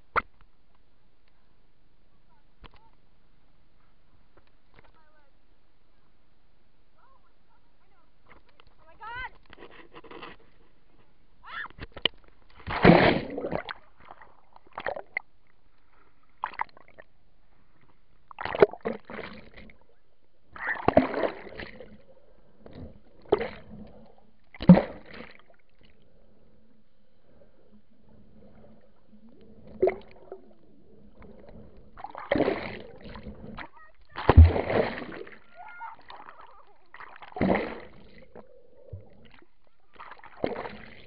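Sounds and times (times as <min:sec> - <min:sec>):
water splashing against camera: 0:26.7 - 0:41.0.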